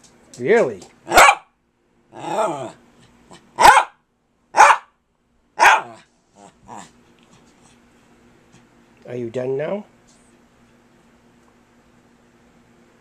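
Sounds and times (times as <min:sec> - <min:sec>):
dog barking sharply: 0:01.1 - 0:01.5, 0:03.6 - 0:05.0, 0:05.6 - 0:06.0
dog yipping: 0:01.1 - 0:01.5, 0:03.6 - 0:04.0, 0:04.6 - 0:04.9, 0:05.6 - 0:06.0
dog whining: 0:02.1 - 0:03.8, 0:05.6 - 0:07.0.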